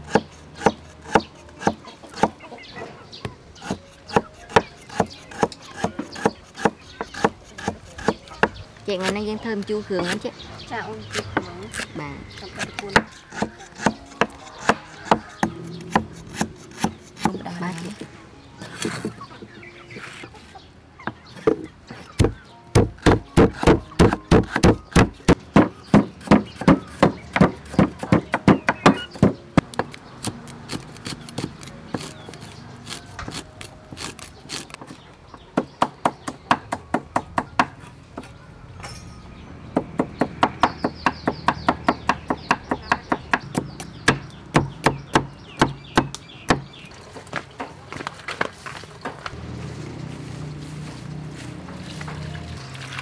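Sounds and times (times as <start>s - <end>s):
cleaver chopping on wooden board: 3.6s - 8.6s, 21.4s - 34.8s, 39.8s - 46.7s
pestle pounding in mortar: 22.2s - 29.7s.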